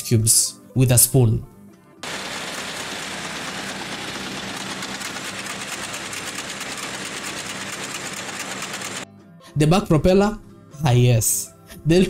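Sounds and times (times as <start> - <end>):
helicopter engine rattling: 2.0 - 9.1.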